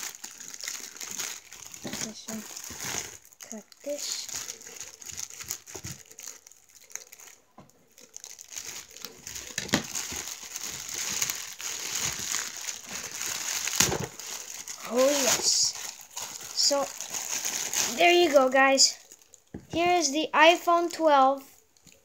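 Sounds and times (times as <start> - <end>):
plastic bag crinkling: 0.0 - 19.8.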